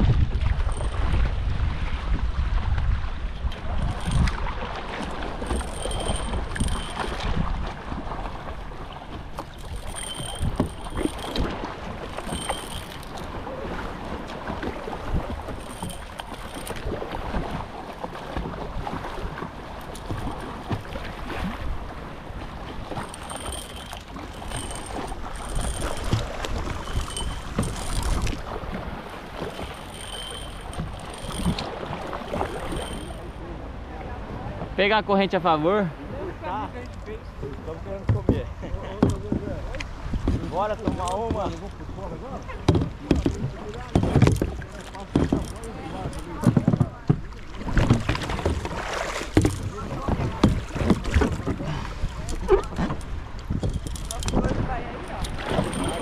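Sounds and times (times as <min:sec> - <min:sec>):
wind buffeting microphone: 0:00.0 - 0:33.3
water sloshing against boat: 0:00.0 - 0:56.0
paddle splashing: 0:03.5 - 0:33.8, 0:42.4 - 0:56.0.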